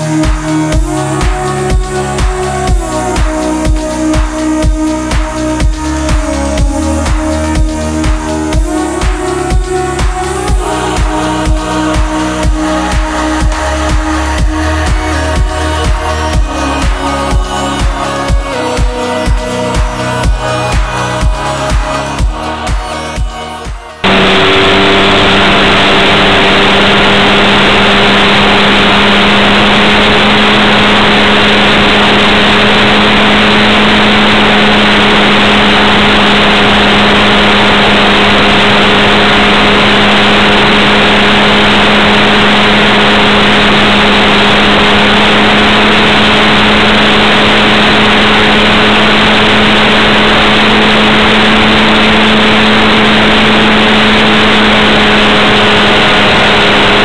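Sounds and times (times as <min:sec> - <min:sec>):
model airplane motor and propeller: 0:24.0 - 0:57.0.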